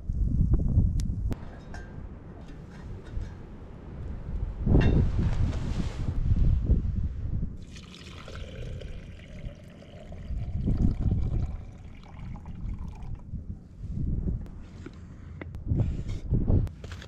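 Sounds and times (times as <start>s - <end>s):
hot water pouring into glass: 7.6s - 13.2s.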